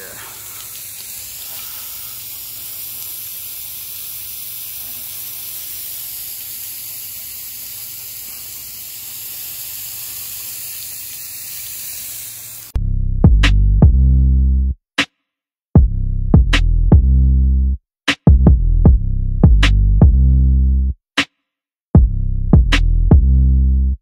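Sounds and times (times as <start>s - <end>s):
hose spray hissing and splashing: 0.0s - 12.8s.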